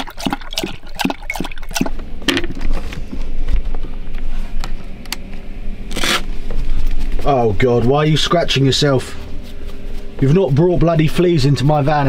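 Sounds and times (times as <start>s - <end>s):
dog lapping water: 0.0s - 2.0s.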